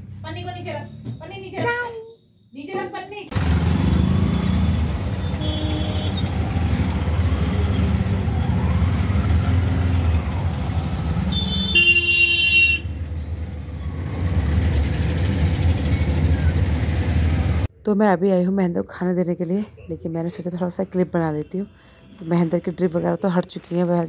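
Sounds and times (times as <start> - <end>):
auto-rickshaw engine running: 3.3 - 17.7
vehicle horn: 5.2 - 6.4, 11.3 - 13.0.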